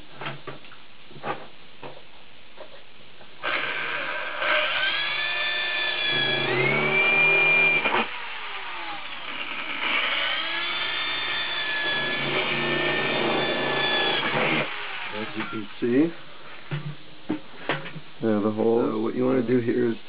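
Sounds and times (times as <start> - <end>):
electric drill boring metal: 3.4 - 15.6.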